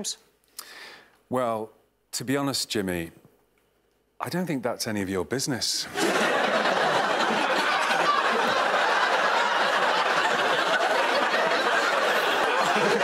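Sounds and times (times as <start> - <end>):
studio audience laughing: 5.9 - 13.0.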